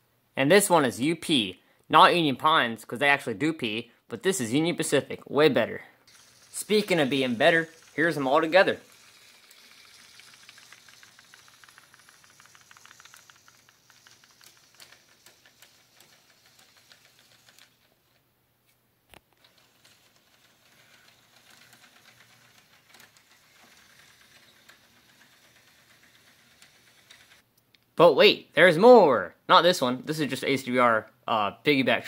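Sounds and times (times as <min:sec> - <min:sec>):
model train wheels clicking: 0:06.1 - 0:18.2, 0:19.4 - 0:27.4.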